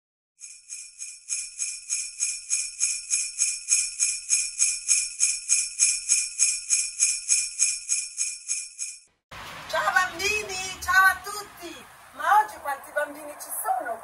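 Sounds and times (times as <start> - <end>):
sleigh bells shaken rhythmically: 0.4 - 9.0.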